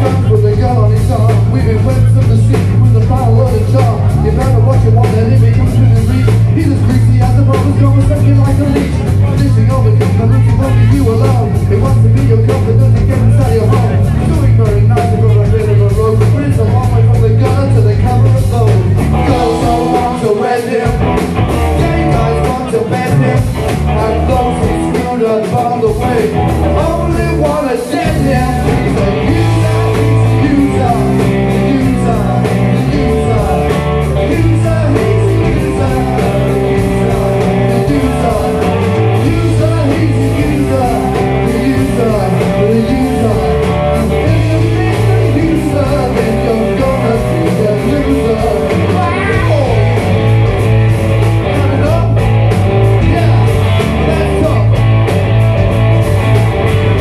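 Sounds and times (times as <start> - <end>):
man singing: 0.0 - 50.5, 51.1 - 55.0
live rock band playing: 0.0 - 57.0.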